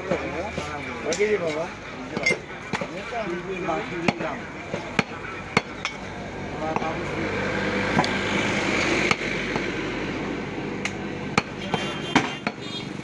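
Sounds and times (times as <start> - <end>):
traffic noise: 0.0 - 13.0.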